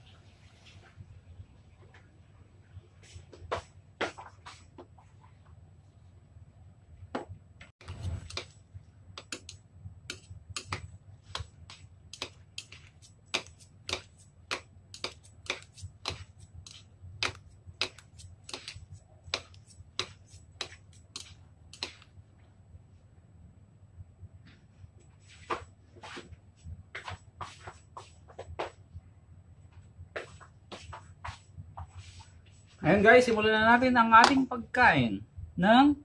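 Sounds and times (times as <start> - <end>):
chopsticks clicking against bowl: 9.2 - 11.5.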